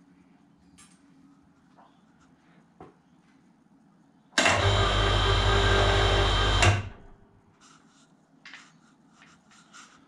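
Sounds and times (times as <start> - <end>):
electric hoist motor humming: 4.4 - 7.2.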